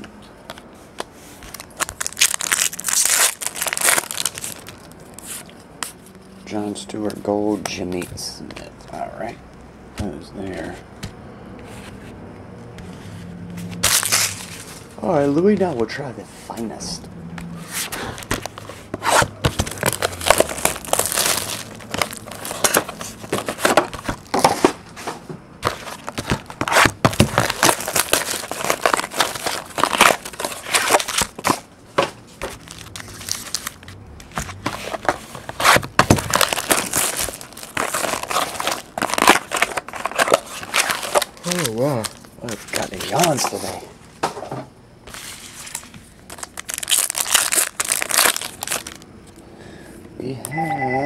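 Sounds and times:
foil packs being handled: 0:01.3 - 0:05.6, 0:13.8 - 0:15.4, 0:17.8 - 0:24.8, 0:25.6 - 0:43.9, 0:45.1 - 0:49.0
plastic wrap crinkling and ripping: 0:01.4 - 0:05.5, 0:13.8 - 0:15.0, 0:18.1 - 0:24.7, 0:25.6 - 0:31.7, 0:32.3 - 0:43.8, 0:45.1 - 0:49.1.

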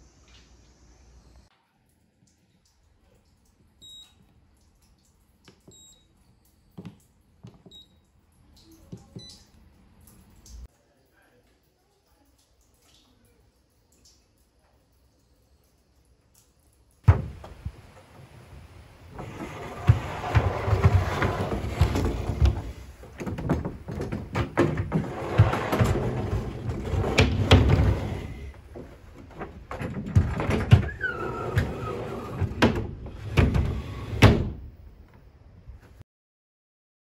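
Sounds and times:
wooden shutters sliding in grooves: 0:19.1 - 0:34.7.

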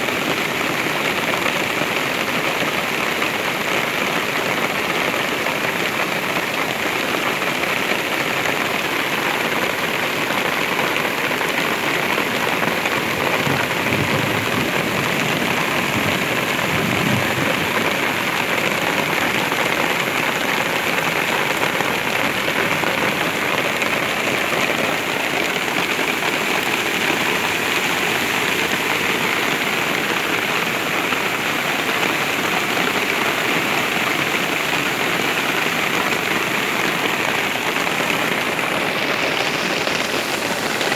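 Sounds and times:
floodwater rushing through channel: 0:00.0 - 0:40.9
steady rain: 0:00.0 - 0:40.9.

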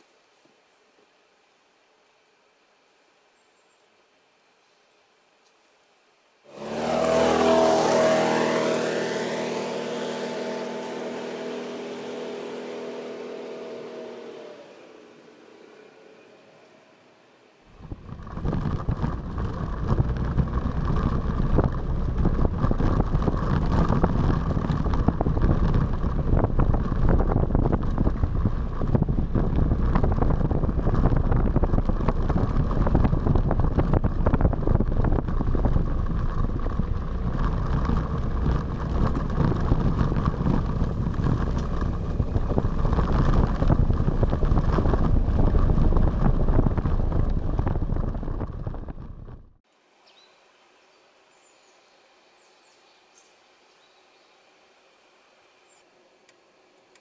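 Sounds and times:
wind rumbling on microphone: 0:06.5 - 0:14.8, 0:17.7 - 0:49.6
scooter engine running: 0:06.5 - 0:16.0, 0:17.8 - 0:49.6.

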